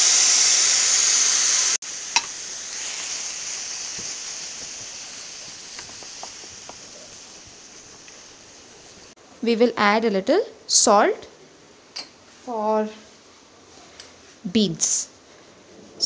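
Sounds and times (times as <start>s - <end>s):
green beans sizzling in oil: 0.0s - 9.2s.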